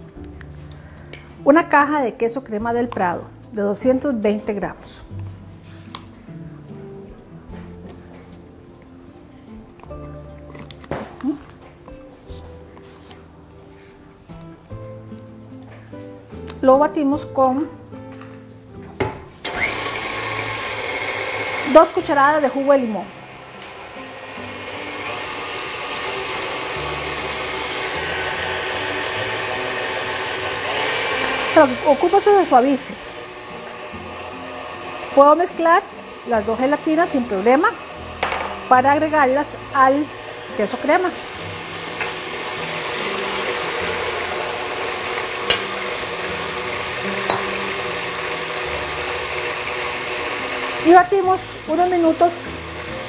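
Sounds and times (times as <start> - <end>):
stand mixer motor whirring: 19.4 - 53.0.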